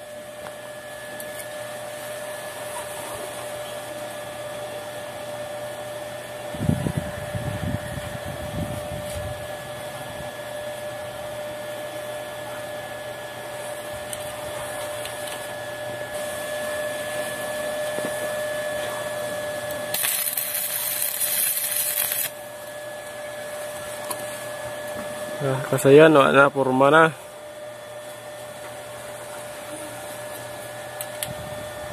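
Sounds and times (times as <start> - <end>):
welding machine hum: 0.0 - 31.9
welding arc crackling hiss: 13.4 - 27.4, 28.0 - 31.4.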